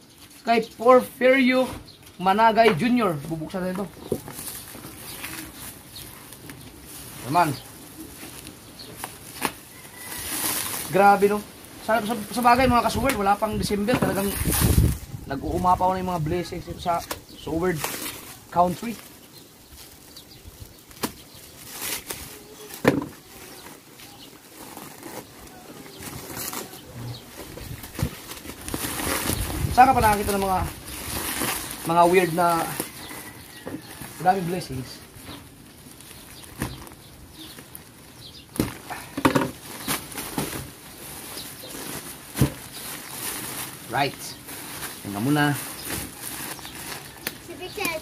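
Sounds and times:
plastic wrapping rustling: 2.3 - 48.0
sharp crackles: 17.0 - 39.0
plastic packaging crinkling: 17.7 - 48.0.

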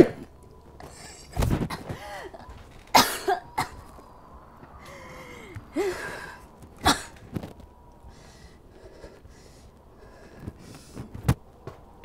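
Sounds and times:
woman coughing: 1.7 - 3.8, 6.8 - 7.2
woman gasping for breath: 4.8 - 6.5.

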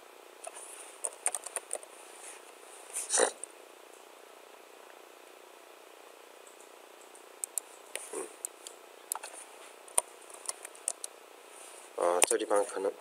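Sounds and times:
computer keyboard clicks: 1.0 - 1.9, 6.4 - 7.7, 9.1 - 9.3, 9.9 - 11.1.

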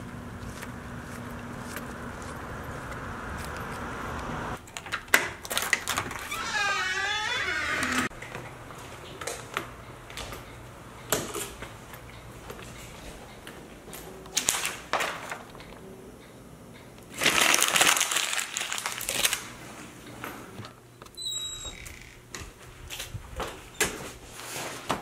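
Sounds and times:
loud rustling and crinkling: 17.1 - 20.0, 22.4 - 25.0.

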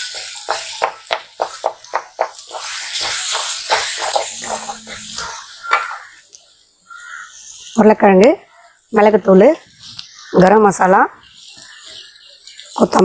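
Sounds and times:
wooden spatula knocking on a pan: 0.1 - 4.8.

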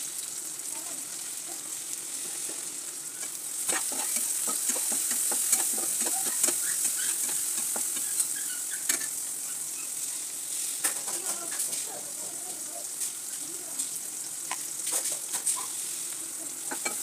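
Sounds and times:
vegetables sizzling in oil: 0.0 - 17.0
utensil scraping pan: 3.2 - 9.2.

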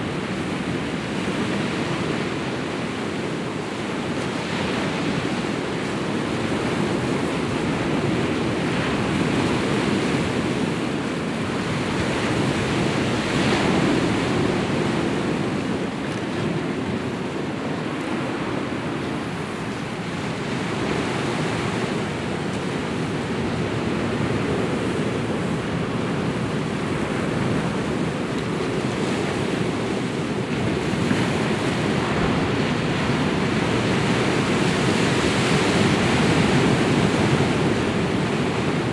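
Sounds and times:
waves breaking on rocky shore: 0.0 - 38.9.

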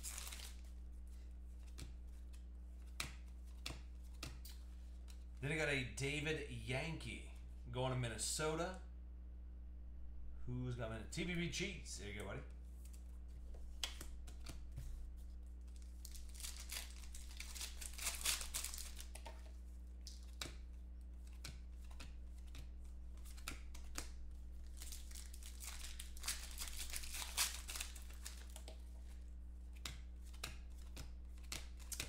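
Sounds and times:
foil wrappers crinkling and tearing: 0.0 - 0.8, 15.7 - 19.4, 23.2 - 28.7
low electrical hum: 0.0 - 32.0
cards clicking: 1.6 - 5.4, 13.7 - 14.6, 15.7 - 28.8, 29.7 - 32.0.

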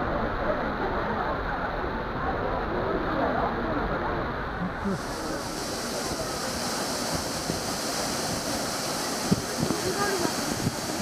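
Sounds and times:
waterfall rushing onto rocks: 0.0 - 11.0
crowd murmuring: 4.5 - 11.0.

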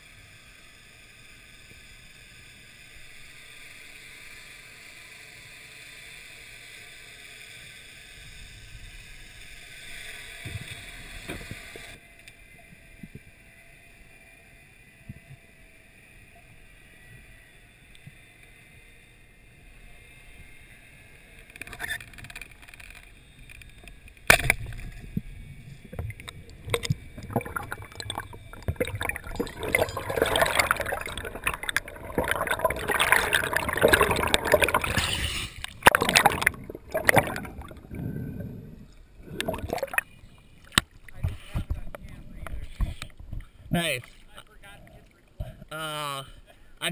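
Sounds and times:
bubbling and splashing: 24.3 - 43.3
underwater hiss: 25.9 - 40.0.

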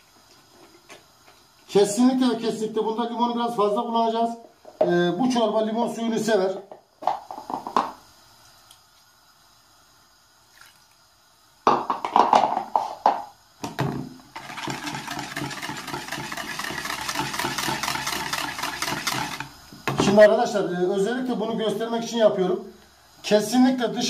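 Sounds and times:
wire whisk rattling in plastic bowl: 14.4 - 19.5.

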